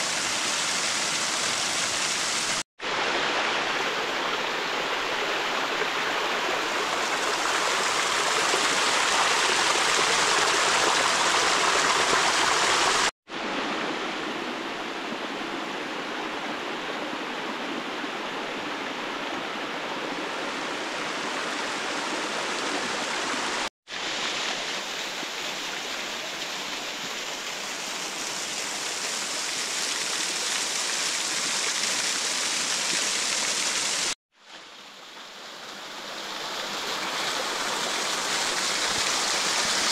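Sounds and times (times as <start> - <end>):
waterfall splashing over rock: 0.0 - 13.2, 21.3 - 34.2, 35.6 - 39.9.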